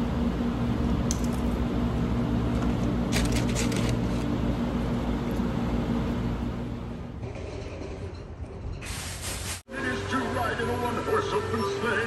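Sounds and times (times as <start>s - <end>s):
low mechanical hum: 0.0s - 9.0s.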